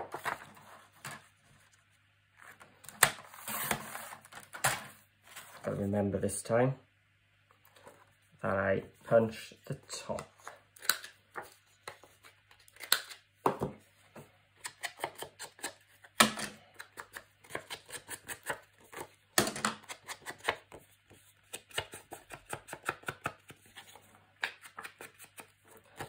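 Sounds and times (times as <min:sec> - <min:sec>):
paper rustling: 0:00.0 - 0:01.8.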